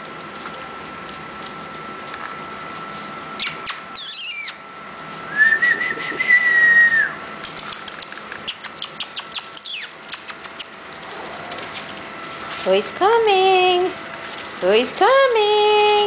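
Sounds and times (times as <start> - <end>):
puppy high whine: 3.4 - 4.7, 8.3 - 12.0
puppies whimpering and yelping: 3.5 - 4.6.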